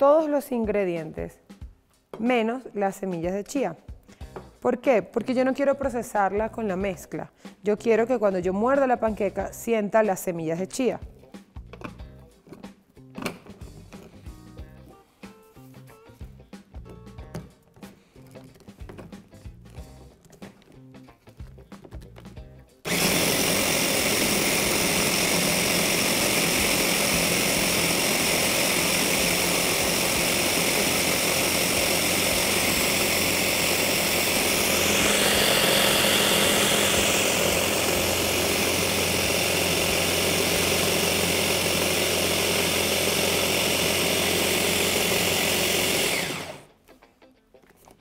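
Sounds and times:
electric hand blender running: 0:22.9 - 0:46.7.

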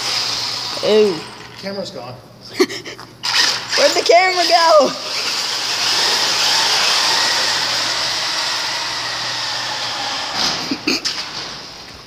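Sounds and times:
electric motor high whine: 0:05.1 - 0:10.6.

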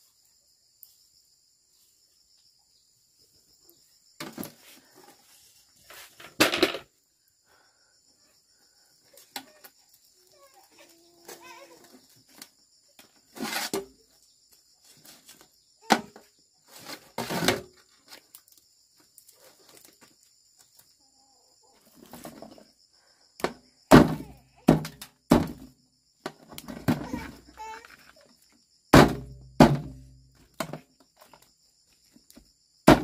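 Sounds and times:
irregular knocks and thuds: 0:23.4 - 0:27.4, 0:29.0 - 0:31.4, 0:32.4 - 0:33.0.

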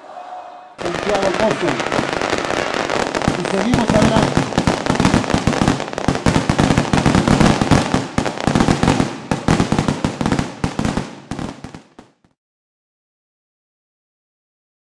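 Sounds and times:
fireworks bangs and crackling: 0:00.8 - 0:12.4.

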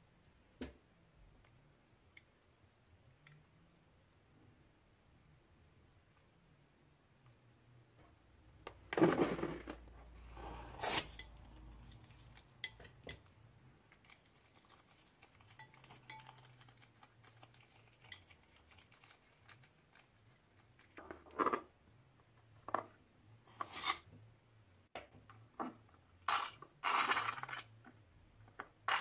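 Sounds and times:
beads clinking into glass bowl: 0:15.5 - 0:16.6, 0:26.3 - 0:27.6.

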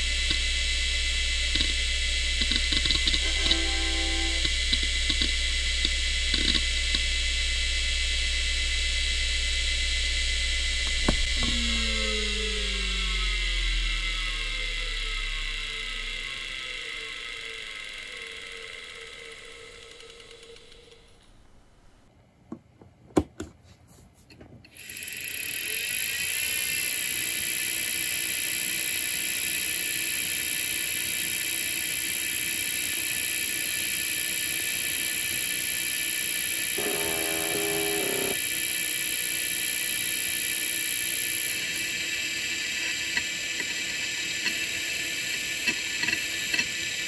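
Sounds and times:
hard drive motor whirring: 0:00.0 - 0:22.0, 0:24.7 - 0:47.0.

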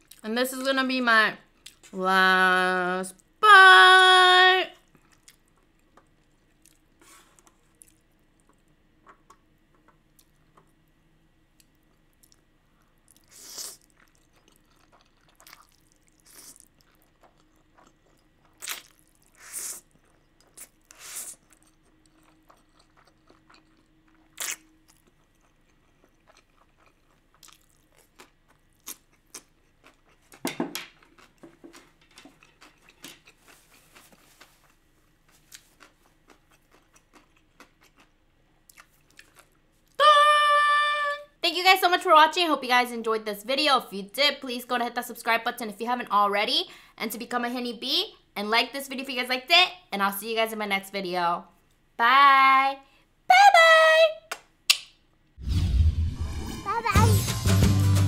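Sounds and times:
wet chewing mouth noises: 0:13.1 - 0:30.4.

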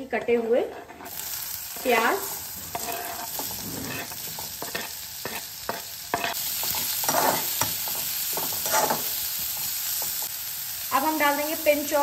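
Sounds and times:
oil sizzling: 0:00.0 - 0:12.0
metal spatula scraping and tapping: 0:00.1 - 0:01.2, 0:02.7 - 0:10.3.

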